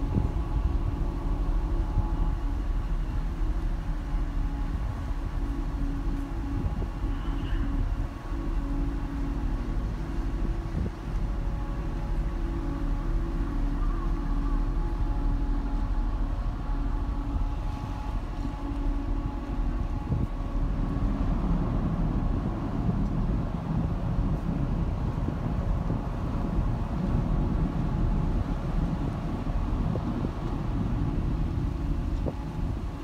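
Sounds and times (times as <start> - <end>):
ship engines low rumble: 0.0 - 33.0.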